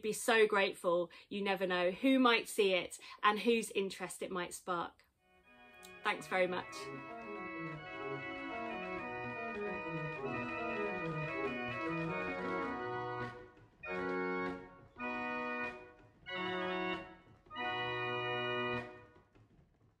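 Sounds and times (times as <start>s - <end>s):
mechanical organ playing: 5.4s - 19.1s.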